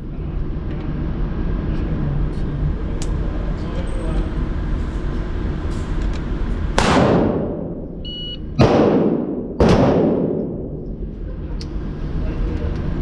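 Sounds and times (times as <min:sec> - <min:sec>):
steady low hum: 0:00.0 - 0:13.0
gunshots echoing indoors: 0:06.8 - 0:07.9, 0:08.5 - 0:10.9
shot timer beep: 0:08.0 - 0:08.6.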